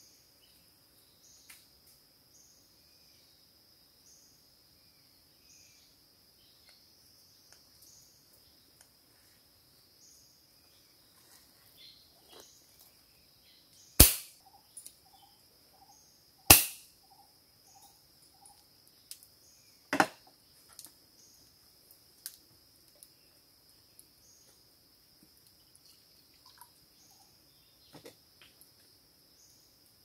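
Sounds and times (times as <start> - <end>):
slingshot sharp cracks: 14.0 - 14.4, 16.5 - 16.9.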